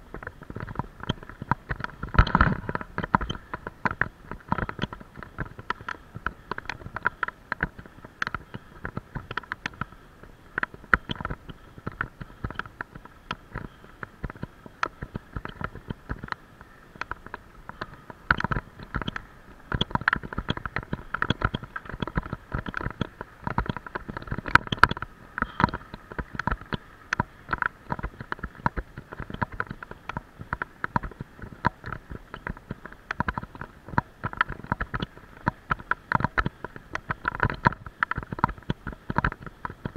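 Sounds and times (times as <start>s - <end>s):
bicycle camera knocks and rattles: 0.0s - 39.9s.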